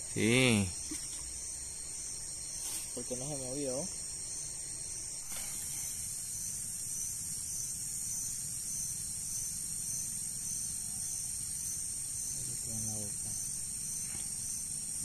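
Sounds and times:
night insects chirping: 0.0 - 15.0.

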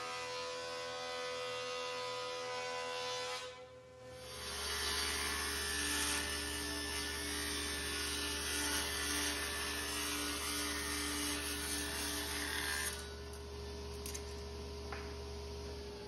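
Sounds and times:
saw blade cutting wood: 0.0 - 13.4
table saw motor humming: 4.2 - 16.0.

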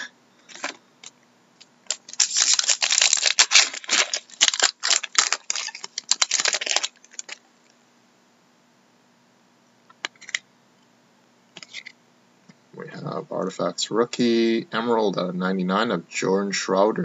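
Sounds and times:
foil wrapper crackling: 1.8 - 7.4.

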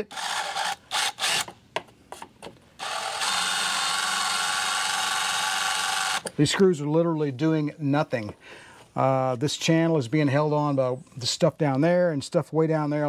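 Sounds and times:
cordless drill running: 0.0 - 1.5, 2.8 - 6.3.

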